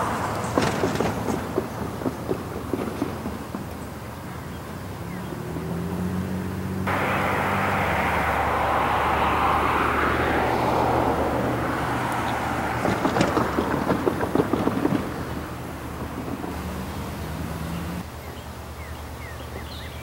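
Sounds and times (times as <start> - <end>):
diesel locomotive engines droning: 0.0 - 5.9, 6.8 - 19.4
loud rushing hiss: 6.9 - 12.4
sharp knocks: 11.7 - 16.6.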